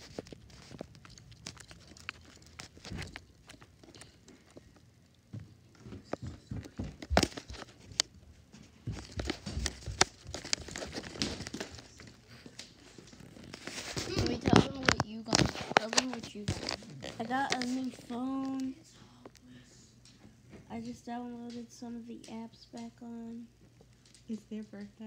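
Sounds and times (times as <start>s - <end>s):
phone microphone rubbing on clothing: 12.2s - 18.5s.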